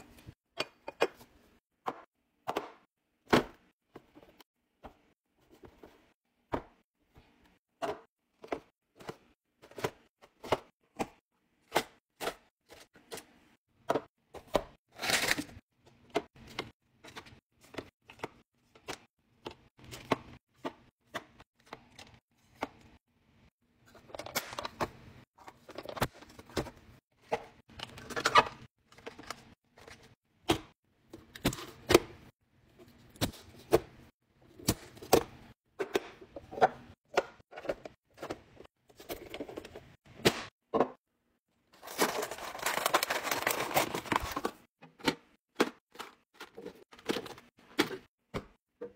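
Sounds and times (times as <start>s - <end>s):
packaging crinkling: 41.8s - 44.5s.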